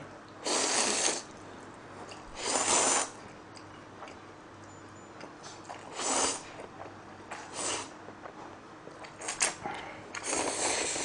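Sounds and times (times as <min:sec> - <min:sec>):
person slurping noodles: 0:00.4 - 0:01.3, 0:02.4 - 0:03.2, 0:05.8 - 0:06.4, 0:10.2 - 0:11.0.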